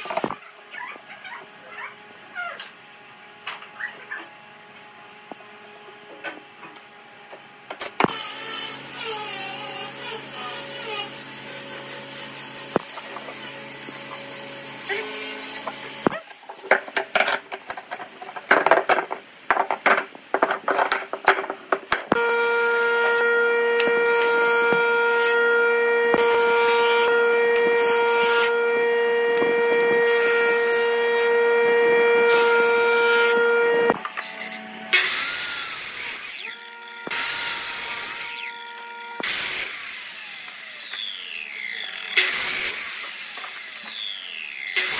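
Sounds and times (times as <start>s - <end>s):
miter saw cutting wood: 8.0s - 16.1s, 22.1s - 44.9s
knocking and clatter: 16.5s - 22.2s
jointer whine: 22.0s - 44.9s.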